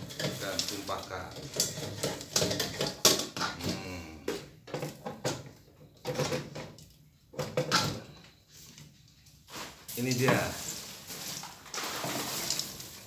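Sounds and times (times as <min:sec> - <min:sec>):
metal pan clunks and rattles: 0:00.0 - 0:03.8, 0:04.4 - 0:08.1.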